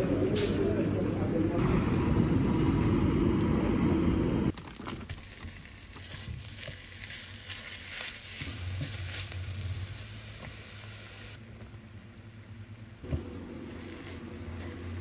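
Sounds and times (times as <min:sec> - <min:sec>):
loud street traffic: 0:00.0 - 0:04.5
meat sizzling in a frying pan: 0:05.8 - 0:11.4.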